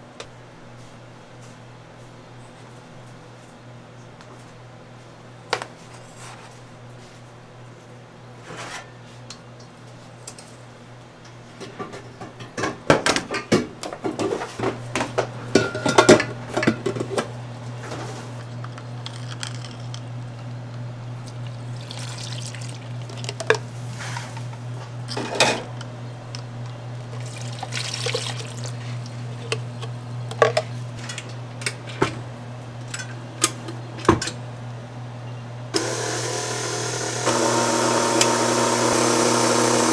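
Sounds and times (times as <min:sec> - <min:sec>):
metal bowls and utensils clattering: 0:15.5 - 0:17.2.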